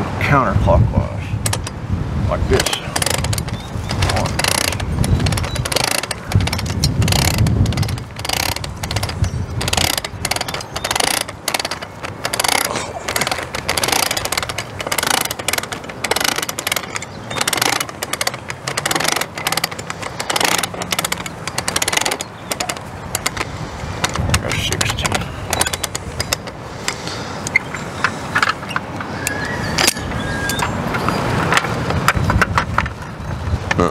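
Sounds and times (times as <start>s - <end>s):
wind rumble on microphone: 0.0s - 26.9s, 27.5s - 33.9s
winding tool clicking: 2.6s - 24.2s.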